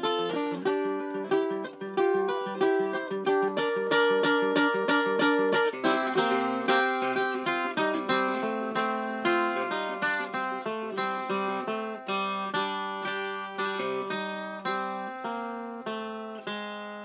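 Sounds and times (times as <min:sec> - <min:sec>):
acoustic guitar fingerpicking: 0:00.0 - 0:17.0.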